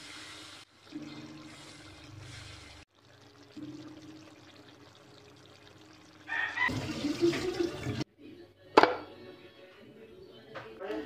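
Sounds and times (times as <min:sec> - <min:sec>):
water pouring and splashing: 0:00.0 - 0:08.1.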